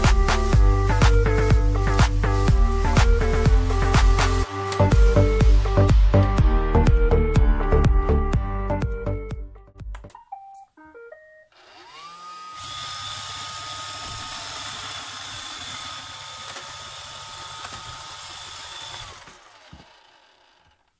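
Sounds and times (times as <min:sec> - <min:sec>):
robot vacuum motors whirring: 0:11.6 - 0:20.9.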